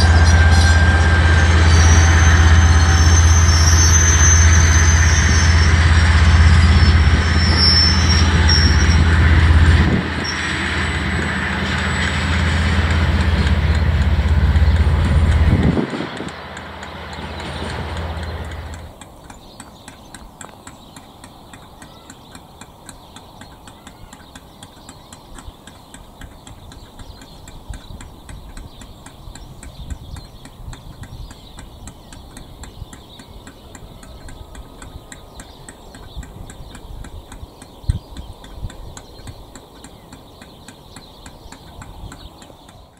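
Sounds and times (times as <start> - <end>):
wind gusts on microphone: 0.0 - 18.9
fast even ticking: 5.6 - 42.9.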